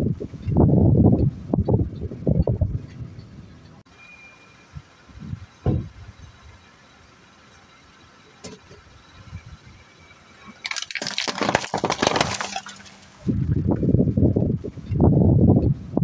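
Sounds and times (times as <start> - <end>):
cans crushing and crackling: 10.6 - 12.8.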